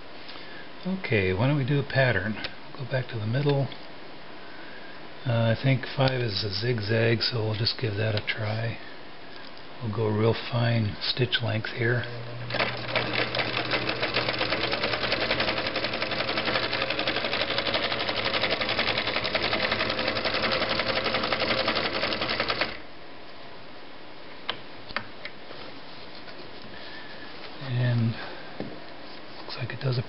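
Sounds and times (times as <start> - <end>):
sewing machine clattering: 12.5 - 22.8.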